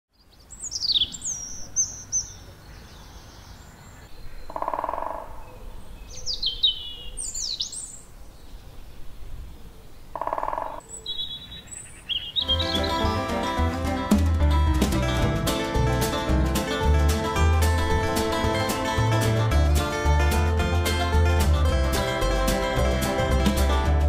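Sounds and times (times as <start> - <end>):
birds singing whistled phrases: 0.2 - 4.8, 5.4 - 8.1, 10.6 - 13.2.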